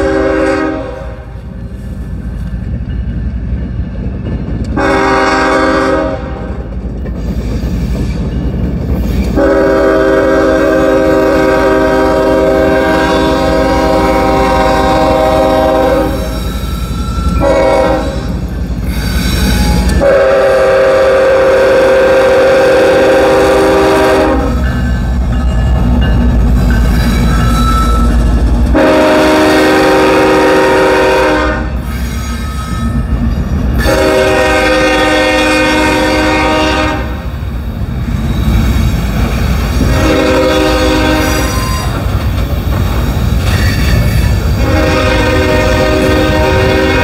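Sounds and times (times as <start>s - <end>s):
locomotive air horn chord: 0.0s - 1.4s, 4.8s - 6.5s, 9.4s - 16.4s, 17.4s - 18.3s, 19.5s - 24.6s, 28.7s - 31.8s, 33.8s - 37.3s, 39.8s - 41.9s, 44.6s - 47.0s
train wheels on rails: 0.0s - 47.0s.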